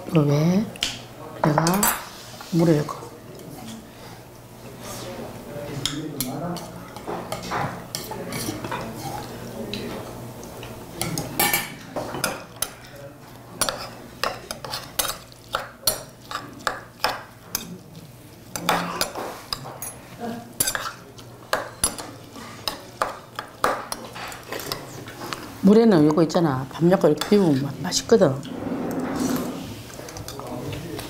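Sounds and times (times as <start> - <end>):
utensils clinking against dishes: 0.8 - 2.2, 5.8 - 17.8, 18.5 - 25.4, 28.3 - 31.0.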